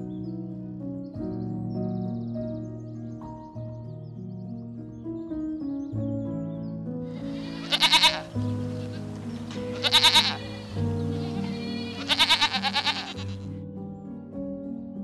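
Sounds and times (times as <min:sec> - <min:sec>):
background music with held notes: 0:00.0 - 0:15.0
goat bleating: 0:07.2 - 0:13.5.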